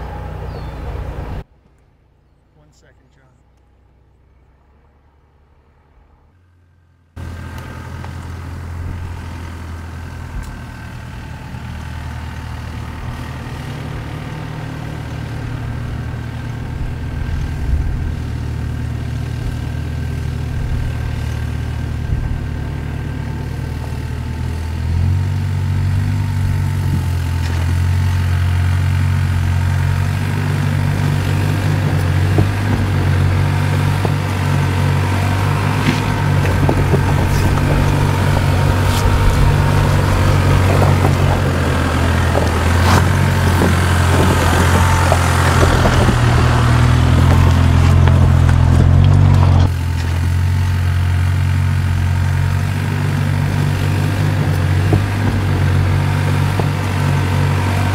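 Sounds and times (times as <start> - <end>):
suv engine running at low revs: 0.0 - 57.9
tyres knocking on stones: 30.7 - 49.7.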